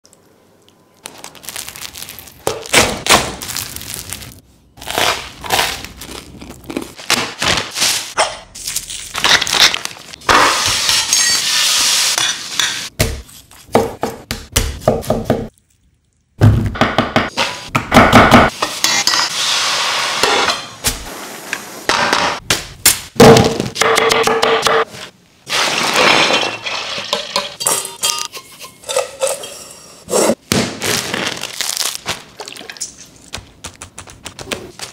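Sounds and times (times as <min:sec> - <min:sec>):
metal pans and bowls clinking: 0:10.9 - 0:11.6, 0:25.9 - 0:30.1.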